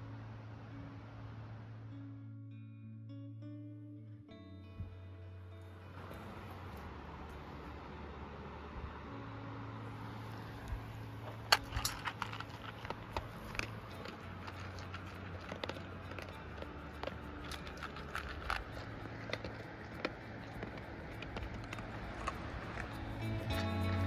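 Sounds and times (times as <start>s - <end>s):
dog crunching dry kibble: 10.2s - 24.0s.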